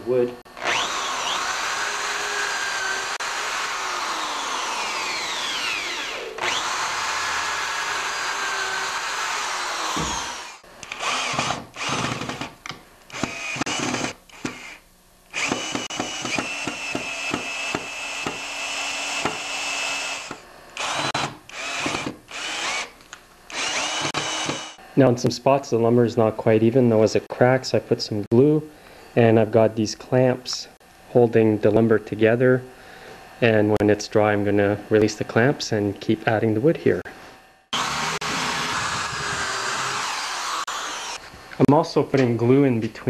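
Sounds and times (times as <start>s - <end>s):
cordless drill driving screws: 0.6s - 12.5s, 13.1s - 24.8s, 37.7s - 41.2s
electric drill boring into wood: 0.6s - 24.8s, 37.7s - 41.2s.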